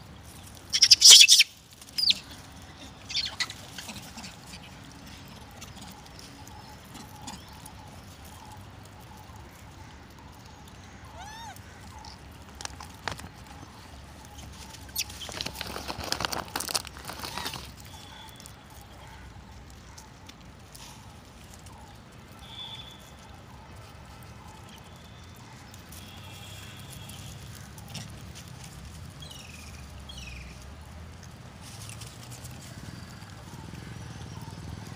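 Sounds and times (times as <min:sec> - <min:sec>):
falling animal squeaks: 0:00.7 - 0:02.3, 0:11.1 - 0:11.6
high animal chirps: 0:00.7 - 0:02.3, 0:03.1 - 0:04.6.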